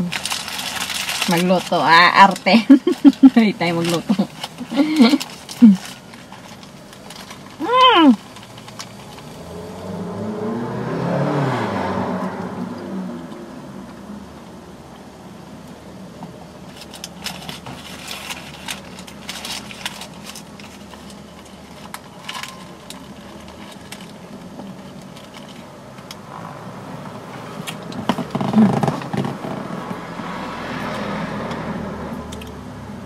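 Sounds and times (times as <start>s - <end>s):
paper wrapper crinkling: 0.0s - 9.8s, 16.7s - 25.8s.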